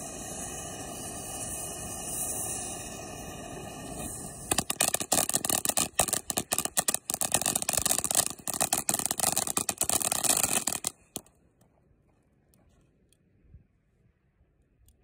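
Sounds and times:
firework crackles and pops: 0.0 - 11.3
firework hiss: 0.0 - 11.3.

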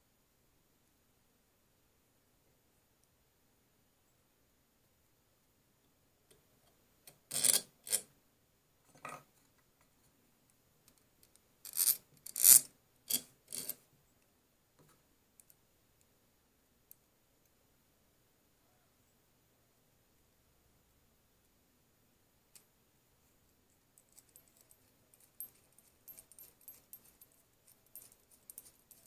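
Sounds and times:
nut and washers clinking on metal rod: 7.1 - 8.0, 11.7 - 13.8, 24.0 - 29.0.

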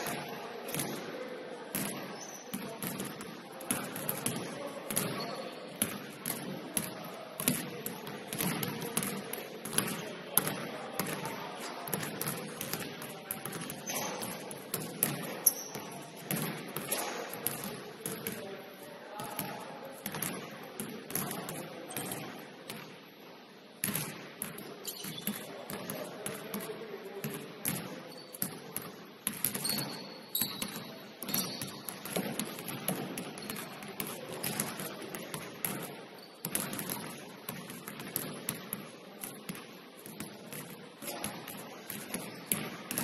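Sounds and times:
basketballs bouncing on wooden floor: 0.0 - 18.5, 19.2 - 23.0, 23.8 - 43.0
short high squeaks: 29.6 - 30.7.

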